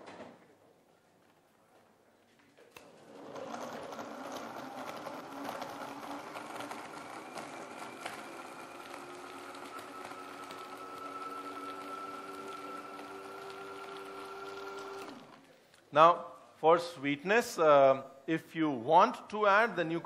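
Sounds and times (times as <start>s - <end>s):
blender motor blending ice: 2.8s - 15.4s.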